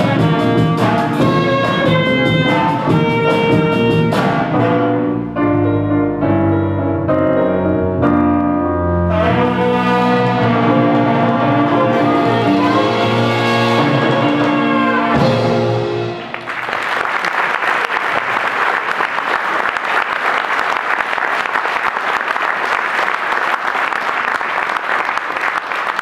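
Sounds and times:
wind ensemble closing chords: 0.0s - 16.4s
audience applauding: 16.1s - 26.0s.

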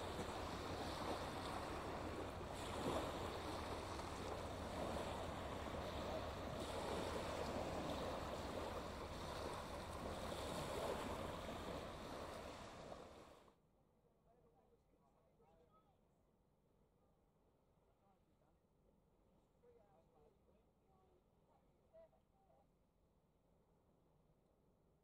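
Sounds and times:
waves washing onto shingle: 0.0s - 13.4s.

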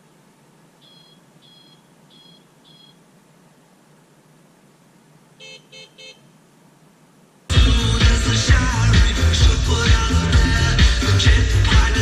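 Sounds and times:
faint bicycle horn beeping: 0.8s - 3.0s, 5.4s - 6.3s.

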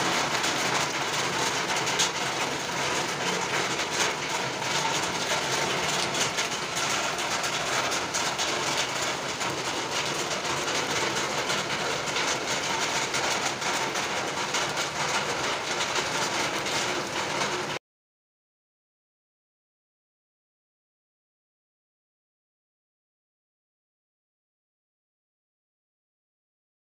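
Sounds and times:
rain hissing: 0.0s - 17.8s
raindrops ticking: 0.0s - 17.8s.

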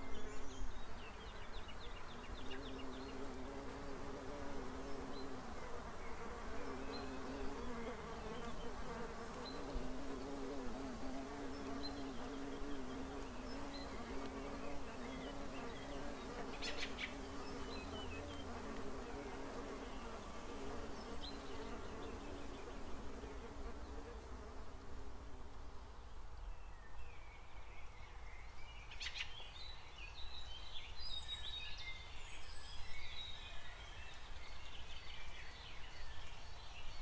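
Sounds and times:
insects buzzing: 0.0s - 25.9s.

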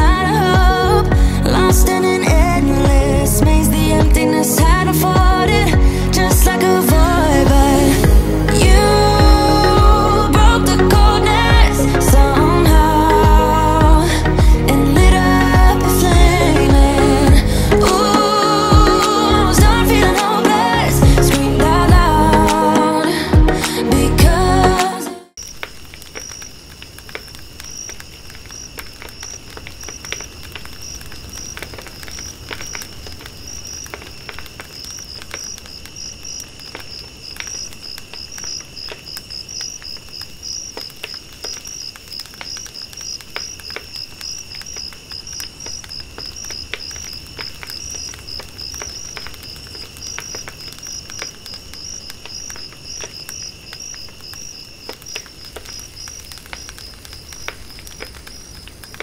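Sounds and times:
faint clicks: 25.4s - 59.0s
low continuous insect buzz: 25.4s - 59.0s
rapid pulsing insect chirp: 25.4s - 59.0s.

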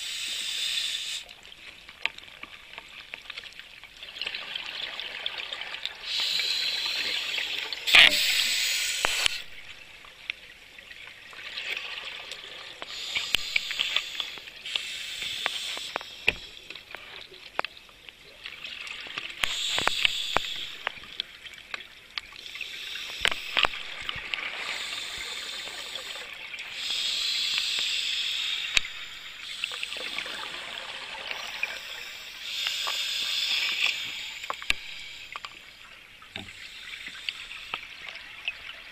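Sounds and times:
scuba regulator breathing bubbles: 6.1s - 9.6s, 12.8s - 16.9s, 19.4s - 21.2s, 22.4s - 35.6s.

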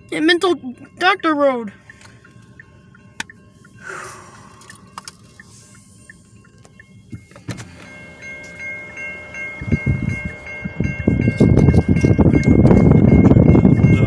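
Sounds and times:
railroad crossing bell ringing: 0.0s - 14.0s
low rumble: 7.9s - 14.0s.

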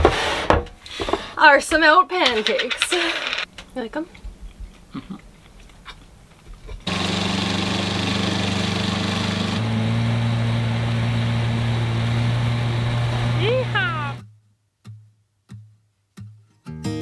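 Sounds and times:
outboard motor running: 6.9s - 14.2s.

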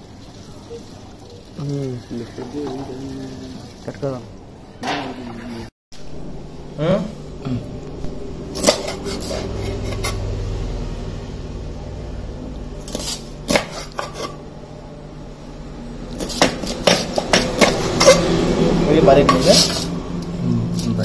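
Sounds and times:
knife chopping on plastic board: 13.5s - 14.3s, 16.2s - 18.2s.

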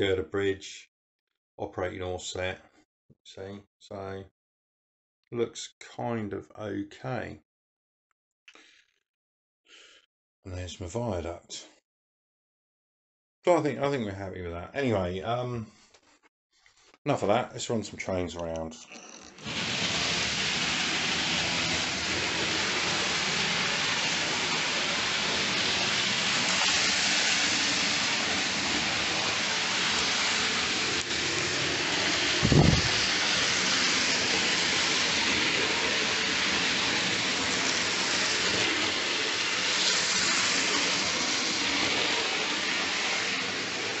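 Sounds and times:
model trains running on track: 19.5s - 44.0s.

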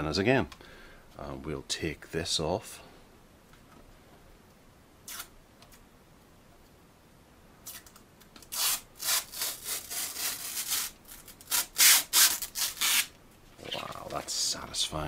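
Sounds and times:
plastic film peeling: 5.1s - 5.3s, 7.6s - 13.1s.

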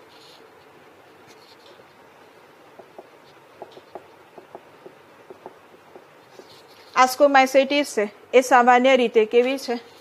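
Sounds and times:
marker squeaking on whiteboard: 2.8s - 7.0s.

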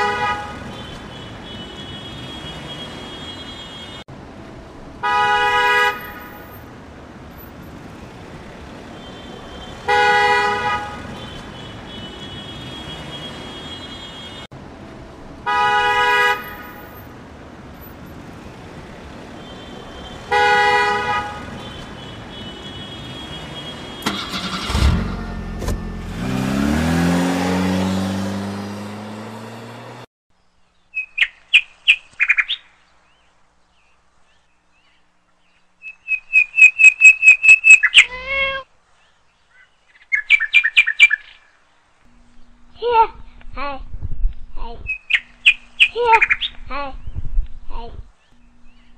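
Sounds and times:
car horn honking: 0.0s - 6.7s, 8.0s - 17.1s, 18.5s - 30.1s
traffic noise: 0.0s - 48.9s
engine revving: 20.2s - 30.1s.

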